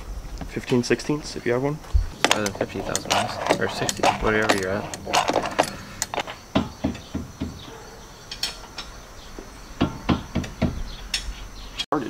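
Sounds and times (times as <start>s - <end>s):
hand tools clicking on metal: 2.2s - 7.1s.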